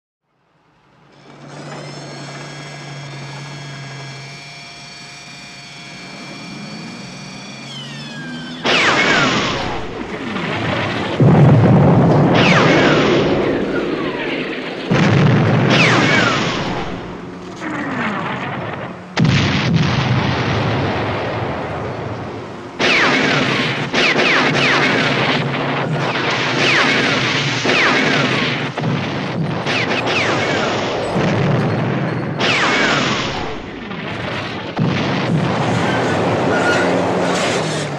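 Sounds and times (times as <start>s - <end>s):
tank engine humming: 0.3s - 37.9s
short rising whine: 1.0s - 19.2s
cannon fire and explosions: 8.5s - 37.9s.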